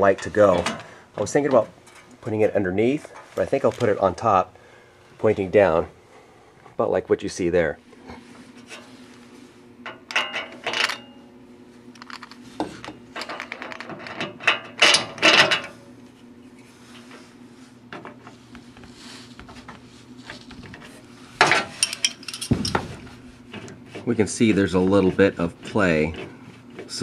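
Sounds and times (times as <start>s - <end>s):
steady low hum: 0.0s - 27.0s
metal fittings clinking: 21.8s - 22.8s.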